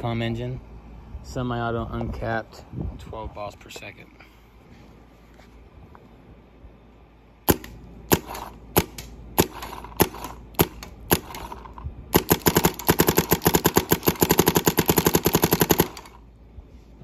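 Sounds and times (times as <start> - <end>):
paintball marker firing: 7.5 - 16.2.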